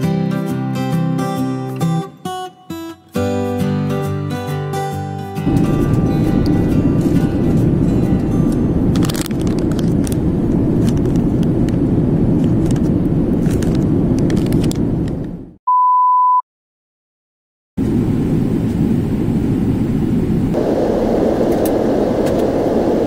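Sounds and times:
airliner cabin rumble: 5.4s - 15.6s, 17.8s - 23.0s
high beep: 15.7s - 16.4s.

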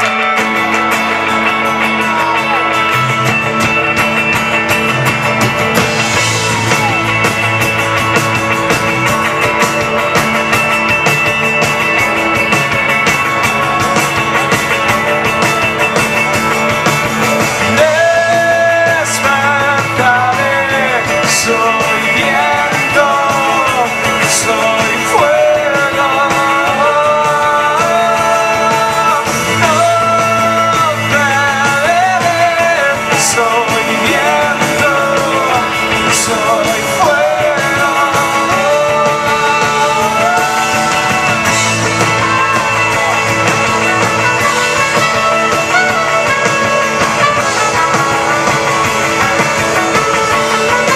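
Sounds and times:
rock band playing live: 0.0s - 50.9s
lead singer vocal melody: 17.4s - 44.0s.

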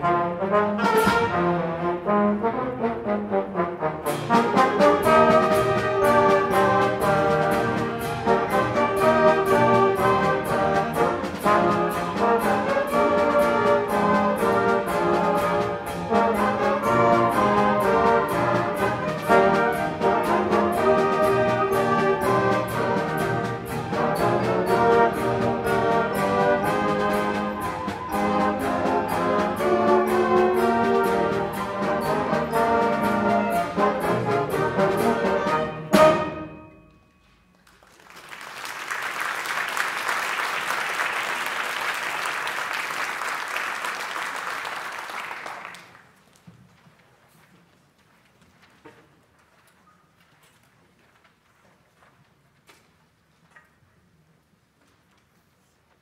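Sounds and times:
concert band playing: 0.0s - 37.4s
audience applause: 37.5s - 46.2s.

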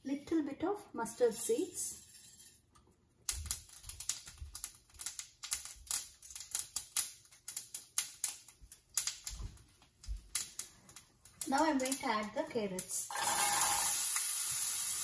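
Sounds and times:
mustard seeds popping in hot oil: 10.0s - 15.0s.

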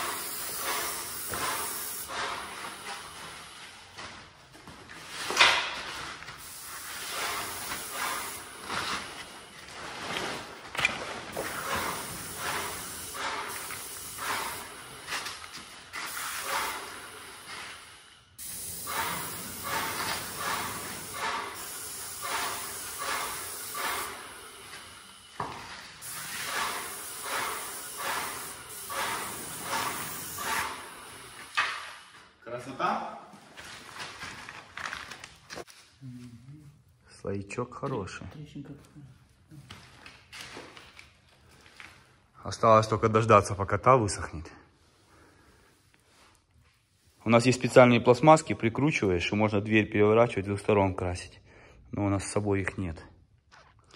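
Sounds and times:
paint spray gun hissing: 0.0s - 3.6s, 6.4s - 8.7s, 11.4s - 15.3s, 16.0s - 25.3s, 26.0s - 32.2s.

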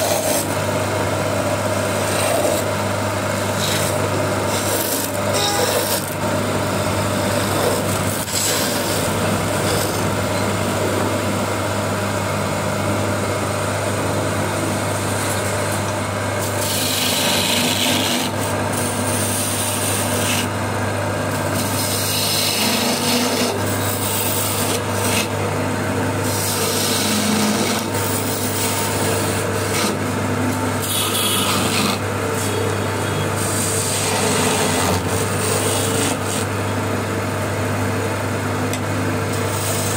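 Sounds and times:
chisel scraping spinning wood: 0.0s - 0.7s, 1.4s - 10.7s, 15.0s - 25.4s, 26.1s - 36.6s
wood lathe humming: 0.0s - 39.9s.

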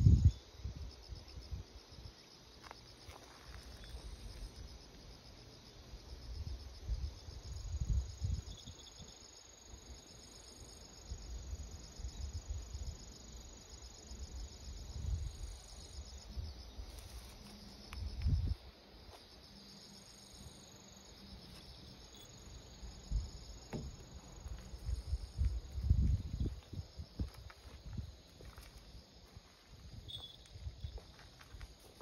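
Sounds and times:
insects chirring: 0.0s - 32.0s
low rumbles on microphone: 23.1s - 28.1s.

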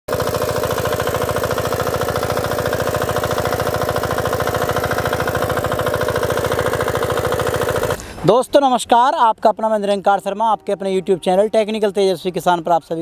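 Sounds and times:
small engine running under load: 0.1s - 8.3s.

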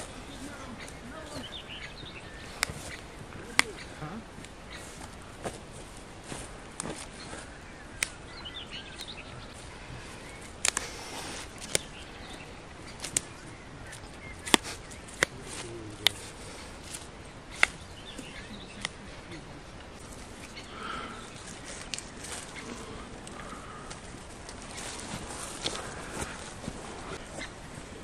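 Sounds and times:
bird chirps: 0.0s - 5.2s, 6.3s - 24.1s
low outdoor hiss: 0.0s - 28.0s
flower stems snapping: 2.4s - 3.8s, 8.0s - 8.2s, 10.4s - 12.0s, 12.9s - 17.9s, 21.3s - 26.3s.

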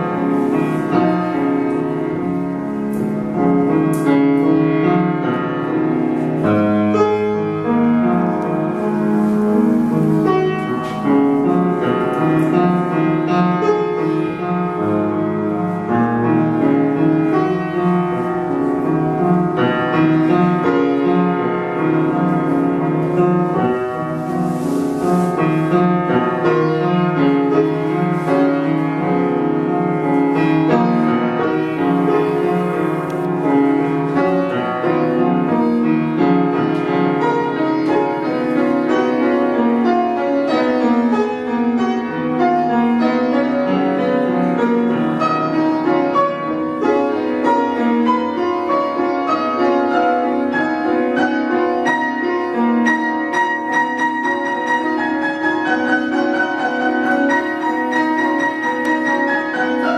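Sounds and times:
piano playing: 0.0s - 59.9s
soft hiss: 6.1s - 34.6s.

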